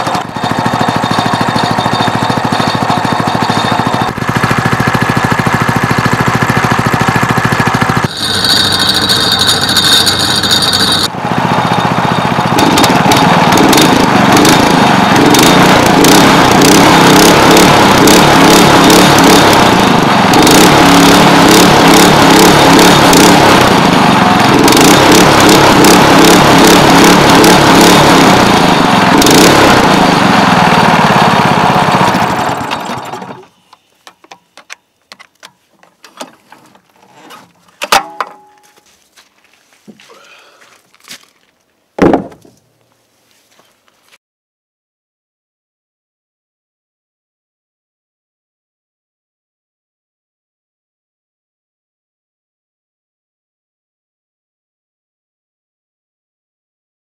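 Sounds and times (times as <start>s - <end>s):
small engine running: 0.0s - 33.8s.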